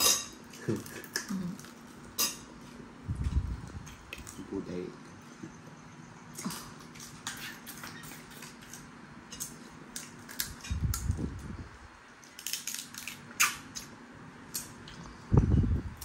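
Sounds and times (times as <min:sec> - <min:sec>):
prawn shells cracking: 0:06.4 - 0:11.2, 0:12.2 - 0:13.9.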